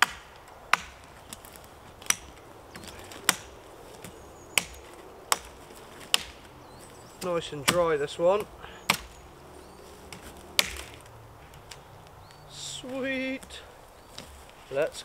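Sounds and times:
axe chopping dry branches: 0.0 - 9.2, 10.0 - 11.8.

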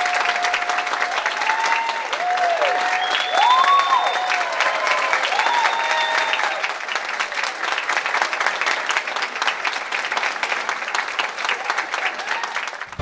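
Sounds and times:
whooping cheer: 0.0 - 6.8, 12.0 - 12.8
audience applauding: 0.0 - 13.0.

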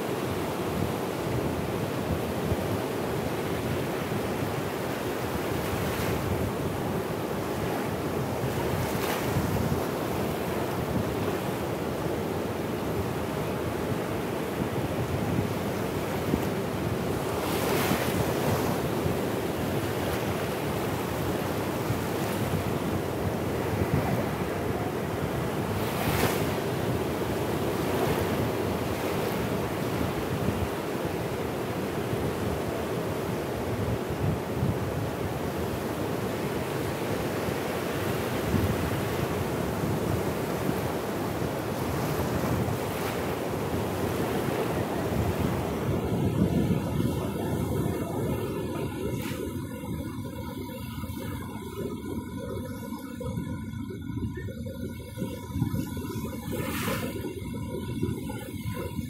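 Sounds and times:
waves lapping on sand: 0.0 - 59.0
wind buffeting microphone: 0.3 - 59.0
distant surf breaking: 14.2 - 58.6.

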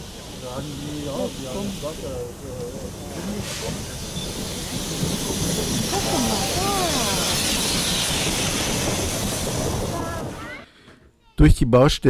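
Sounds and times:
steam hissing: 0.0 - 11.0
voices in background: 0.4 - 4.6.

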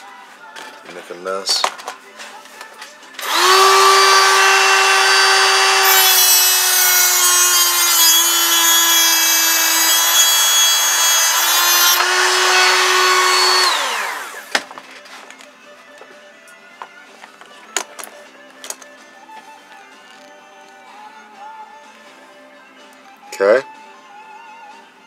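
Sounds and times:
heat gun motor whining: 3.2 - 14.6.

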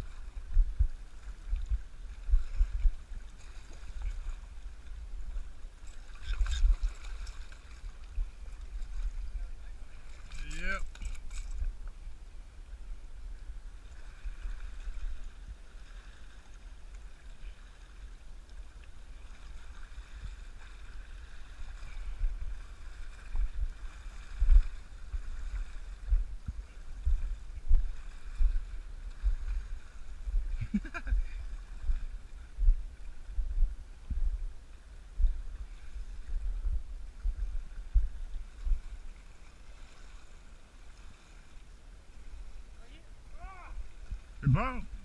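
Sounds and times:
wind buffeting microphone: 0.0 - 10.0, 19.8 - 39.3.

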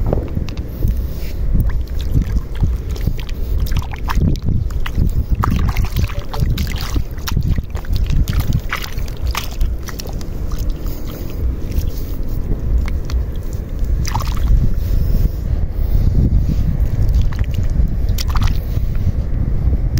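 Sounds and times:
wind on microphone: 0.0 - 19.9
hand splashing in shallow water: 1.6 - 14.6.

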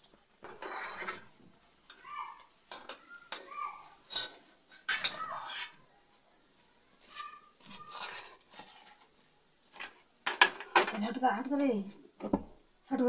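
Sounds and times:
metal utensils clattering on steel pan: 0.0 - 2.0, 2.7 - 5.8, 9.8 - 11.2.

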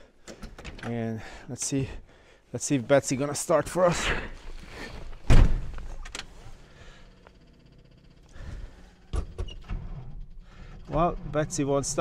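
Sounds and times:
heavy thump: 5.3 - 5.8.

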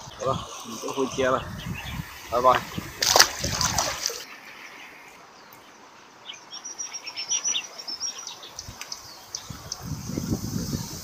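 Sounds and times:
small bird chirping: 4.5 - 11.0.

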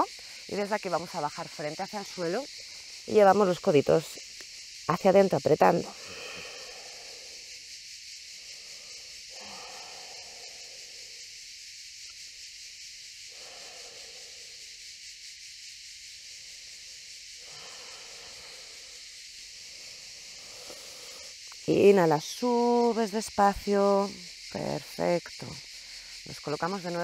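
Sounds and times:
cicadas buzzing: 0.0 - 27.0
soft breaths: 5.8 - 11.4, 13.3 - 14.6, 16.5 - 21.6.

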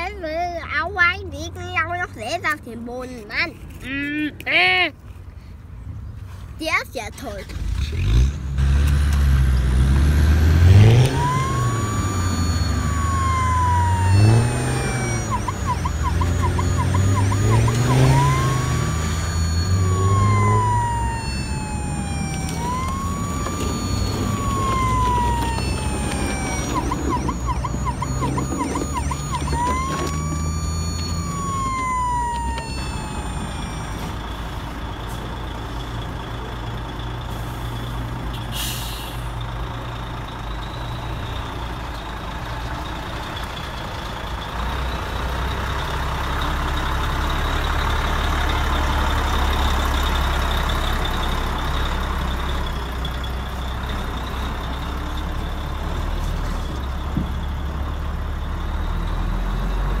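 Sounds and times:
toy truck motor whine: 10.4 - 34.2
toy siren wailing: 10.8 - 34.2.

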